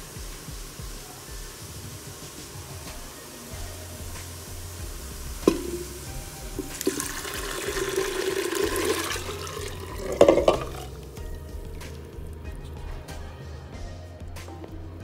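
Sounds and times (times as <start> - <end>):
knock on pot: 5.4 - 10.9
liquid pouring into pot: 5.4 - 12.1
liquid splash: 5.4 - 12.1.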